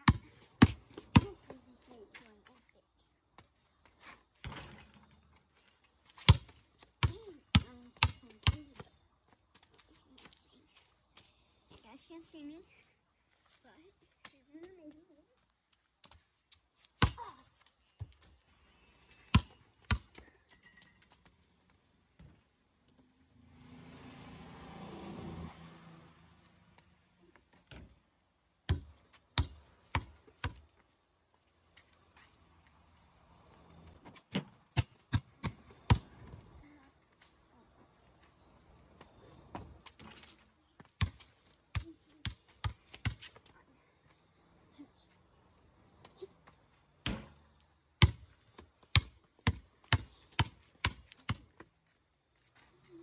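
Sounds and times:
basketball bouncing: 0:00.0 - 0:01.4, 0:06.2 - 0:08.8, 0:28.7 - 0:30.6, 0:34.1 - 0:36.4, 0:40.9 - 0:43.3, 0:47.0 - 0:47.4, 0:48.0 - 0:48.3, 0:48.9 - 0:51.4.

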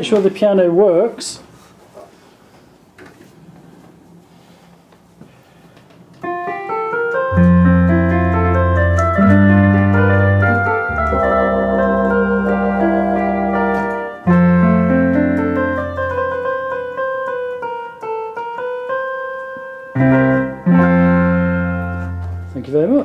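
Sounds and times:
electronic organ piano chords: 0:06.2 - 0:23.0.

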